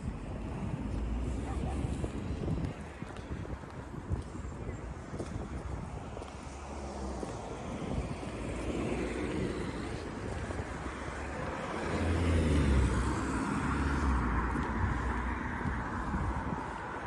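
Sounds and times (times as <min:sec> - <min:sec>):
wind buffeting microphone: 0:00.0 - 0:17.0
car passing: 0:06.3 - 0:17.0.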